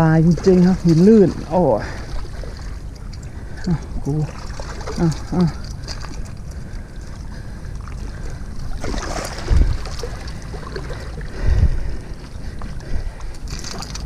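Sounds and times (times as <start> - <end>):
wind buffeting microphone: 0.0 - 14.0
waves washing against rocks: 8.7 - 11.6.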